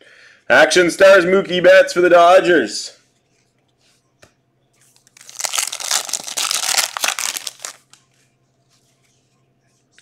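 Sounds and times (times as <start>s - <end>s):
foil wrapper tearing and crinkling: 5.0s - 8.0s.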